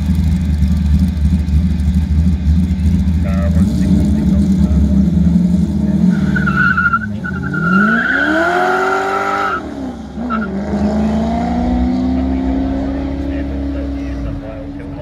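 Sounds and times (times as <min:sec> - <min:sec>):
race car engine revving: 0:00.0 - 0:15.0
tyres squealing: 0:05.9 - 0:10.6.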